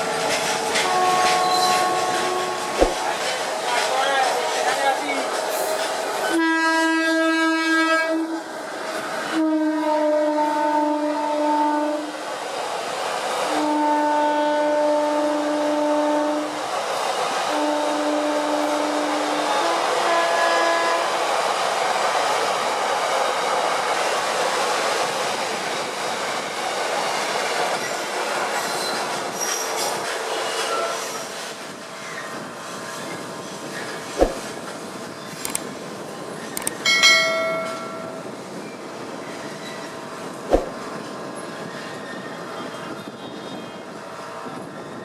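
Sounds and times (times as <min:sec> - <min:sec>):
locomotive horn blasts: 0:00.8 - 0:02.8, 0:06.3 - 0:08.3, 0:09.3 - 0:12.1, 0:13.5 - 0:16.5, 0:17.5 - 0:21.1.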